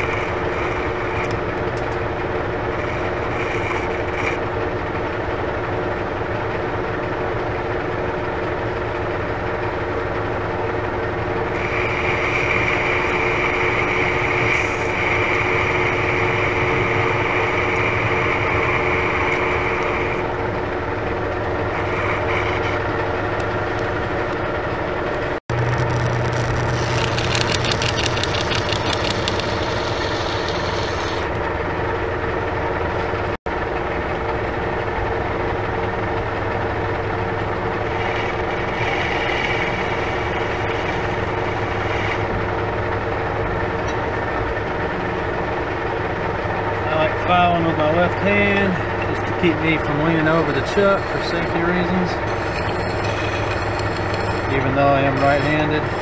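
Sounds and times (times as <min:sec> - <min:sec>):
deburring tool scratching: 0:00.0 - 0:01.4, 0:02.7 - 0:04.4, 0:11.5 - 0:20.3, 0:21.6 - 0:22.9, 0:25.5 - 0:31.3, 0:37.9 - 0:42.3, 0:47.3 - 0:56.0
metal lathe humming: 0:00.0 - 0:06.8, 0:07.7 - 0:33.4, 0:35.0 - 0:56.0.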